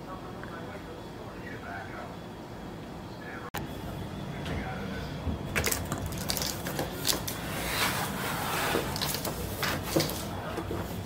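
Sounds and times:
cardboard boxes clicking and rustling: 5.6 - 8.0, 8.6 - 10.8.

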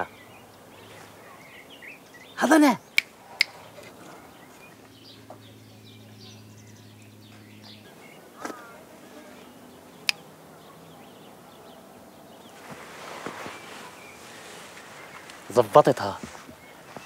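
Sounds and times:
low steady hum: 0.0 - 12.9
small birds chirping: 0.0 - 17.0.

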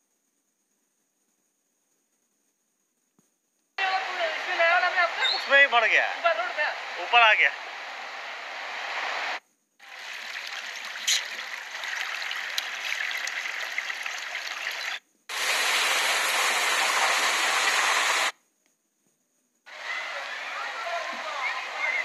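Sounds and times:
floodwater rushing: 9.8 - 18.3, 19.7 - 22.0.

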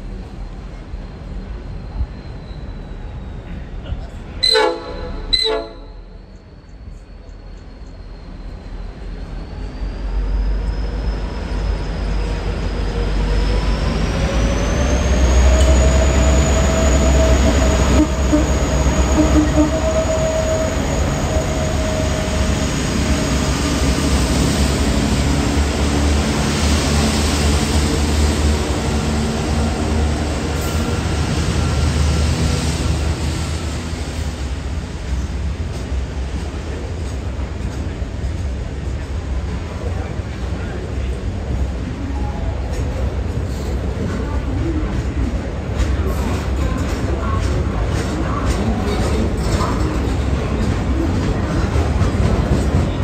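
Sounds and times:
diesel locomotive engines: 0.0 - 53.0.

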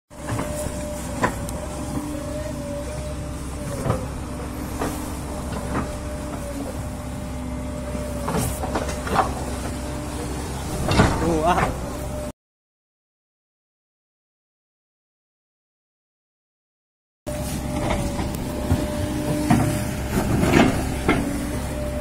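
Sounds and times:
diesel engine droning: 0.1 - 12.3, 17.3 - 22.0.

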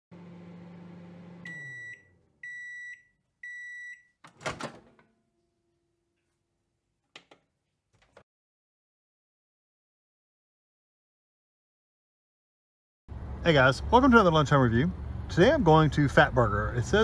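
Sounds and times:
microwave oven humming: 0.1 - 6.0
microwave end beeps: 0.3 - 4.7
microwave door clunk: 4.3 - 5.1.

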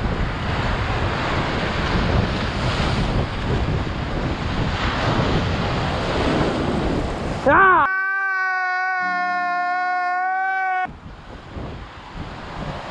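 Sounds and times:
wind buffeting microphone: 0.0 - 7.6, 10.8 - 12.9.

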